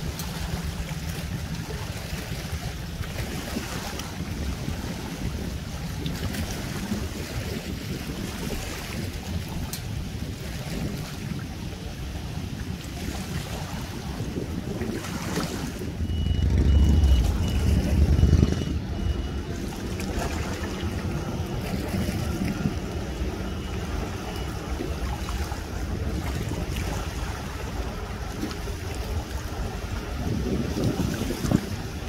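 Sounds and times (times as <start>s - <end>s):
outboard motor running: 0.0s - 32.0s
small waves lapping: 0.0s - 32.0s
wind buffeting microphone: 0.0s - 32.0s
faint high beep: 16.0s - 25.4s.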